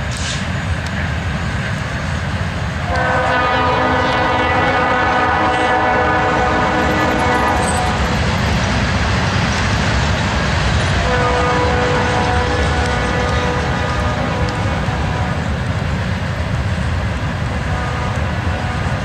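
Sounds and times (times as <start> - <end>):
freight train rumbling past: 0.0 - 19.0
locomotive air horn blast: 2.8 - 8.2, 11.0 - 15.6, 17.5 - 19.0.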